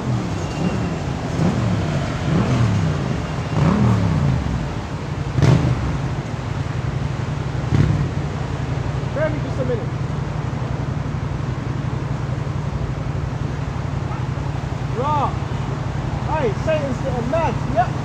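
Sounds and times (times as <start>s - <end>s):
car engine revving: 0.0s - 9.7s.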